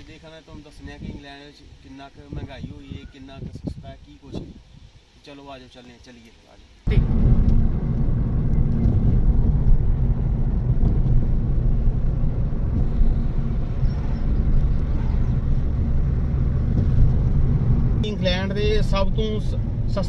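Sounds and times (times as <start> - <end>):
car cabin road and engine rumble: 6.8 - 20.0.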